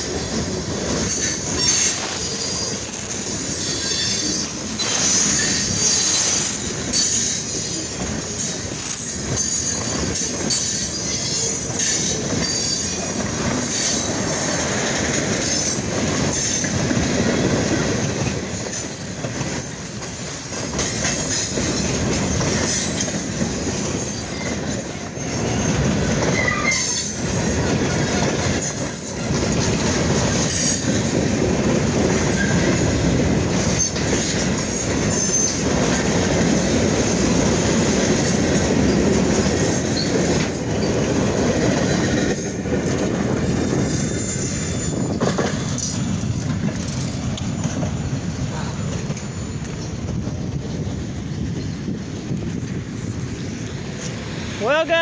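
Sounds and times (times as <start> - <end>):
train wheels rumbling and clacking: 0.0 - 55.0
wheel squeal: 1.1 - 14.4, 24.0 - 27.7, 32.3 - 33.0, 33.8 - 35.7, 39.8 - 41.1, 43.8 - 46.0, 49.0 - 50.2.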